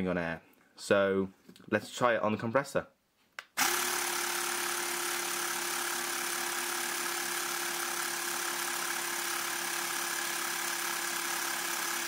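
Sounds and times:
air compressor running: 0:03.6 - 0:12.0.

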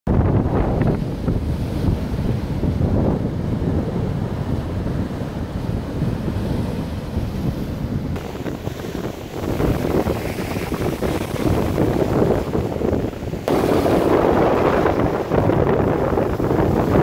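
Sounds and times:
wind buffeting microphone: 0:00.1 - 0:17.0
waves breaking against sea wall: 0:00.3 - 0:17.0.

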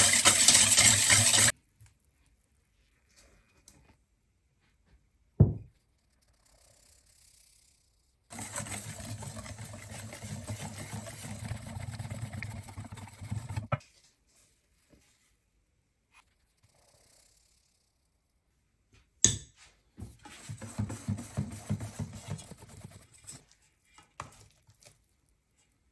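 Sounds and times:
whisk scraping in metal bowl: 0:00.0 - 0:01.6, 0:08.3 - 0:13.8, 0:20.2 - 0:23.6.

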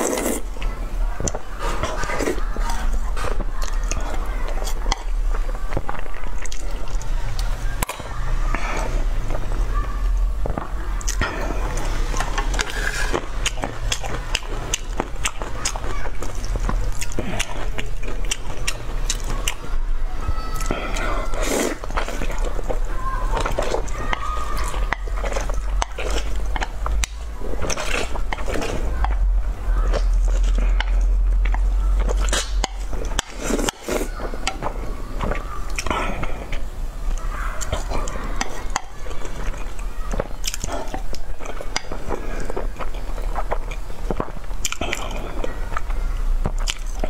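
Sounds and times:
wet chewing and slurping: 0:00.0 - 0:19.9, 0:20.5 - 0:47.0
mouth clicks and smacks: 0:10.1 - 0:19.7, 0:20.6 - 0:47.0.

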